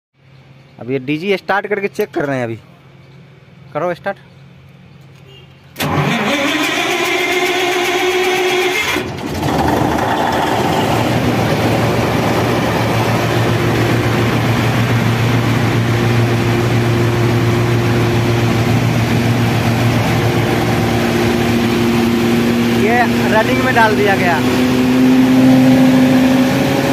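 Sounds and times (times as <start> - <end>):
diesel generator idling: 5.8 - 26.1.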